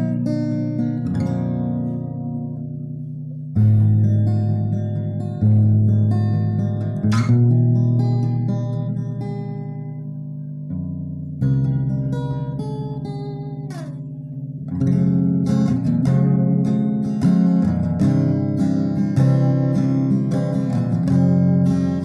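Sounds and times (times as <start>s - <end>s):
acoustic guitar plucking and strumming: 0.0s - 22.0s.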